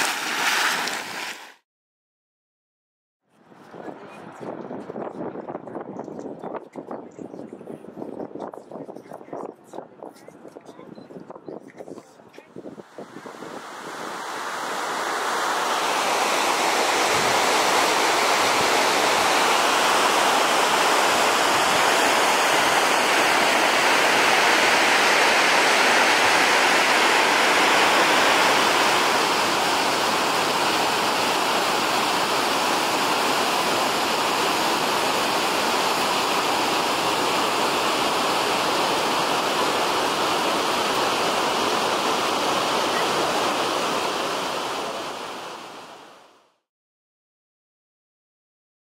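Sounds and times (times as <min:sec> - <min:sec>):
waterfall rushing: 0:12.9 - 0:46.1.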